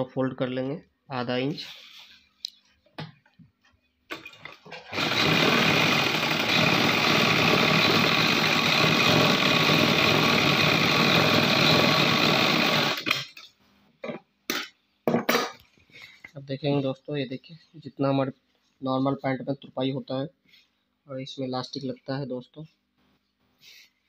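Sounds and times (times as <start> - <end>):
sewing machine running: 4.1 - 13.3.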